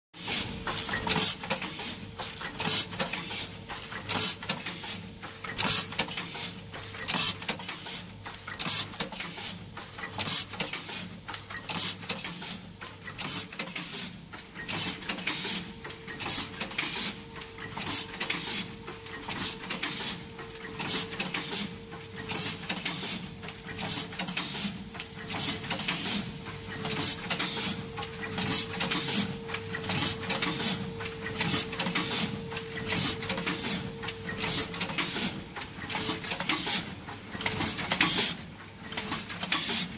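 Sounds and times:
packaging machine clacking: 0.2s - 39.9s
machine hum: 14.3s - 37.6s.

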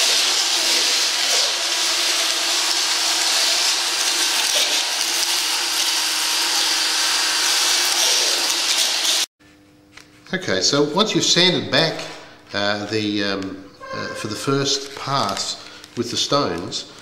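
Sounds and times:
drill motor whine: 0.0s - 9.2s
sanding disc grinding stone: 0.0s - 9.2s.

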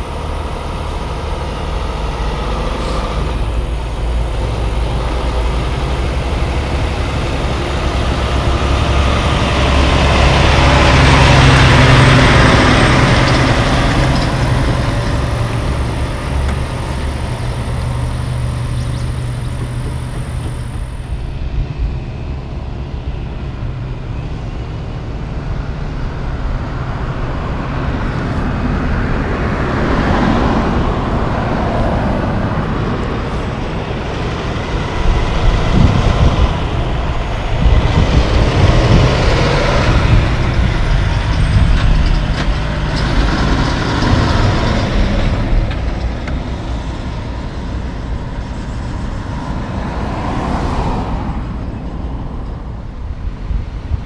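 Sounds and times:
diesel truck driving past: 0.0s - 54.0s.

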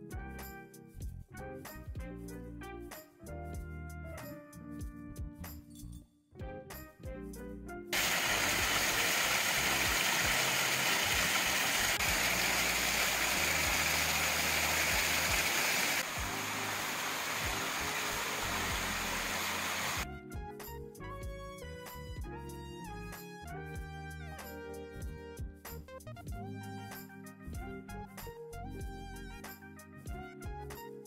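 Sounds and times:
background music: 0.0s - 31.0s
stream rushing over rocks: 8.0s - 20.0s.

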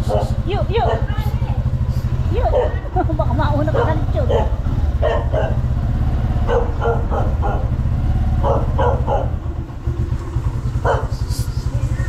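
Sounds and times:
dog barking: 0.0s - 1.3s, 2.4s - 3.0s, 3.6s - 5.7s, 6.4s - 9.5s, 10.7s - 11.3s.

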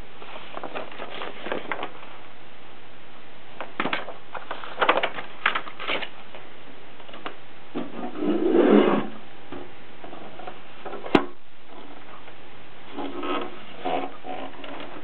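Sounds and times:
paper rustling: 0.2s - 2.1s, 3.8s - 6.5s.

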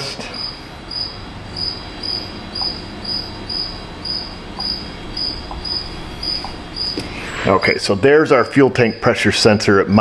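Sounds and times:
low background noise: 0.0s - 10.0s
cricket chirping: 0.4s - 7.9s.

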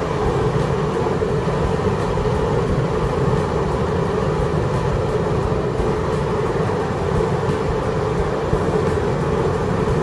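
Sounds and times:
car road and engine noise: 0.0s - 10.0s.

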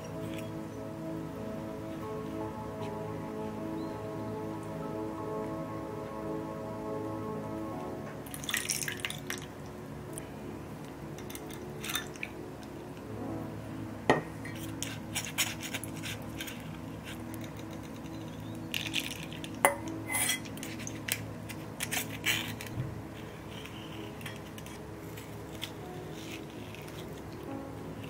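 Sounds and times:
spoon clinking against metal strainer: 11.2s - 12.3s, 14.4s - 22.6s.

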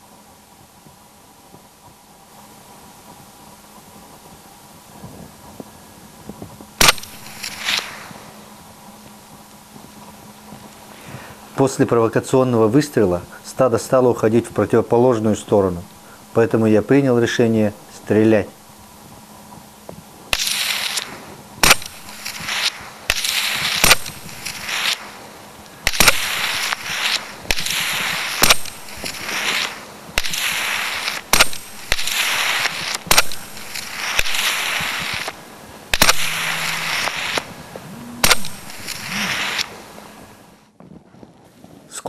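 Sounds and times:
rushing hiss: 2.1s - 19.0s, 20.3s - 40.6s
rifle shots: 6.8s - 8.2s, 20.3s - 25.2s, 25.8s - 39.9s.

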